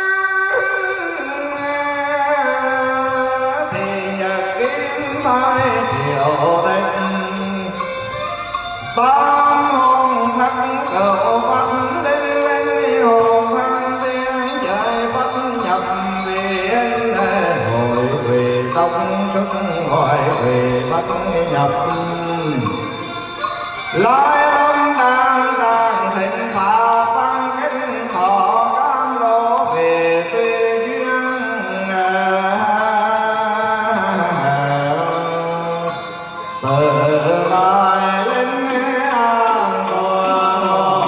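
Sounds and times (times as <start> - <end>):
high jingling: 0.0 - 41.0
monk chanting long notes: 9.0 - 23.2.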